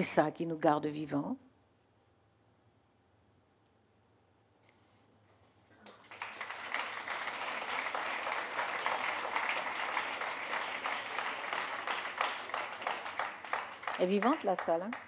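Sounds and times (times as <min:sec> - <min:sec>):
audience applauding: 0:05.8 - 0:15.0.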